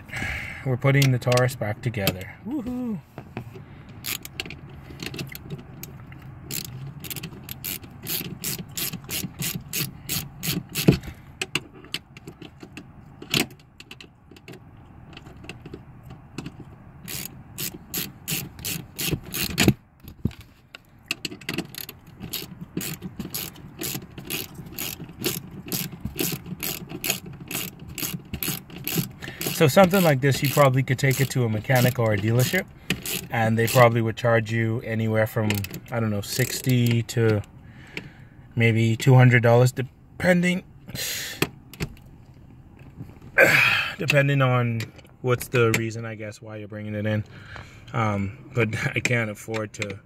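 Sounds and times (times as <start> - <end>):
ratchet wrench clicking: 3.9 - 11.1, 17.0 - 19.8, 21.1 - 34.0.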